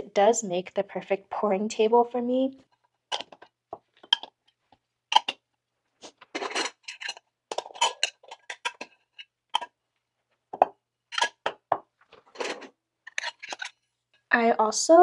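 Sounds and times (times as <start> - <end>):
metal lids clinking on tins: 3.1 - 3.4, 6.2 - 9.7, 10.6 - 11.6, 12.3 - 13.8.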